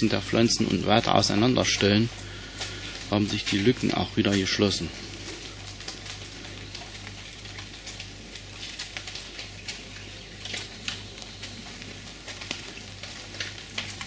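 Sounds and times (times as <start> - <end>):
constant low hum: 0.0 - 14.0
crackling hiss with ticks: 0.0 - 14.0.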